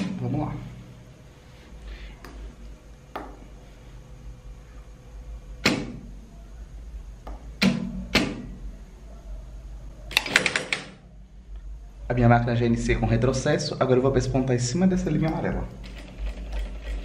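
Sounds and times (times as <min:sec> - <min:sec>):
sewing machine motor hum: 0:15.1 - 0:17.0.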